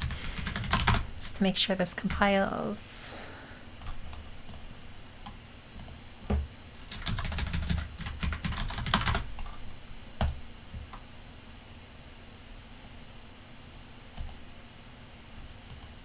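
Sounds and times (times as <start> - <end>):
computer keyboard typing: 0.0 - 1.0, 5.2 - 9.6, 10.2 - 11.0, 14.2 - 14.4, 15.7 - 16.0.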